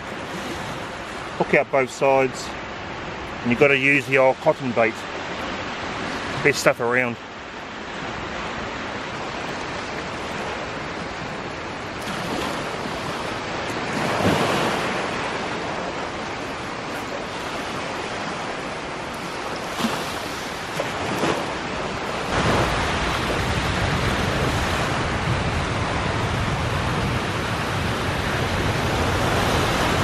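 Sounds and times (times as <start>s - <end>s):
small waves breaking on beach: 0.0s - 30.0s
wind buffeting microphone: 7.4s - 30.0s.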